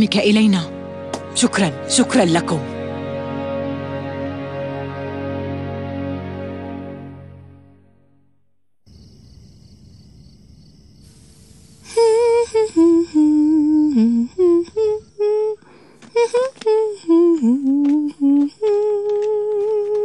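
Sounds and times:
crickets chirping: 8.8s - 19.8s
person humming a tune: 11.9s - 20.0s.

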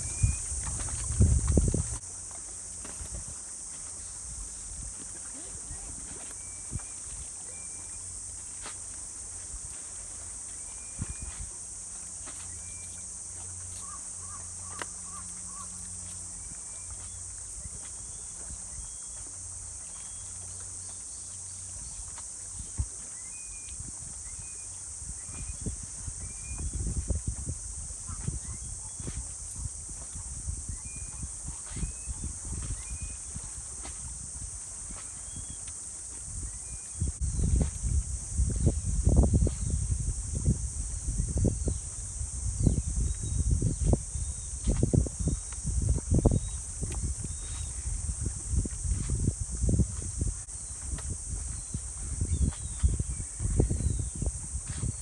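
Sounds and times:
wind rumble on microphone: 0.0s - 2.1s, 2.9s - 7.4s, 9.3s - 11.7s, 21.4s - 55.0s
high-pitched insect drone: 0.0s - 55.0s.

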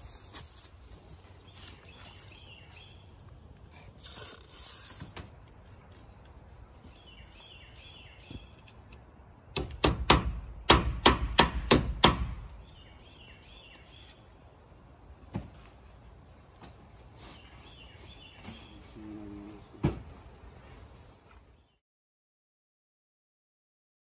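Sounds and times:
bird chirping: 0.1s - 8.9s, 12.5s - 14.5s, 17.1s - 19.4s.

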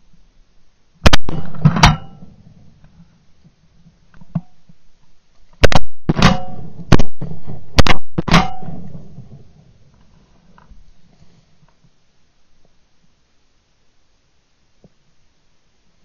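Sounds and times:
shotgun blasts: 1.0s - 2.3s, 5.6s - 9.1s.

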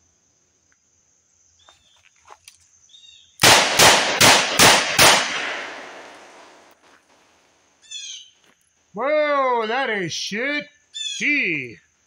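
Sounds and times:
revolver shots: 3.4s - 6.7s.

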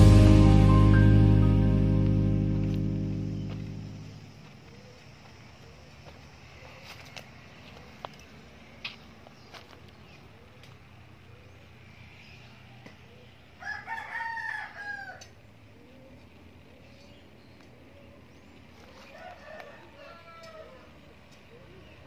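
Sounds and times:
rooster crowing: 13.6s - 15.4s, 19.0s - 21.1s.

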